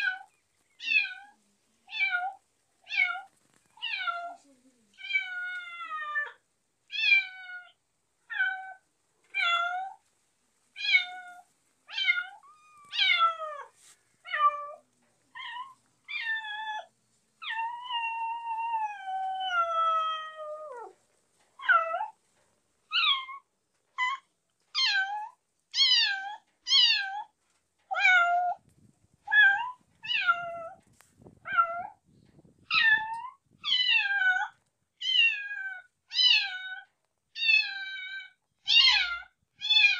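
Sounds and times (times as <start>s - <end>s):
kittens meowing: 10.8s - 20.9s, 37.4s - 39.9s.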